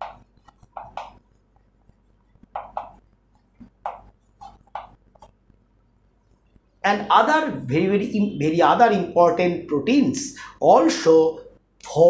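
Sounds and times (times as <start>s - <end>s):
chalk scratching on a chalkboard: 0.0s - 5.0s.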